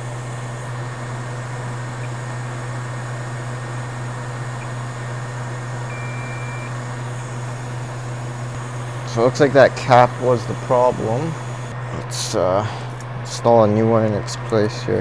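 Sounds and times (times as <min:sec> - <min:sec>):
low equipment hum: 0:00.0 - 0:15.0
multimeter beep: 0:05.8 - 0:07.6.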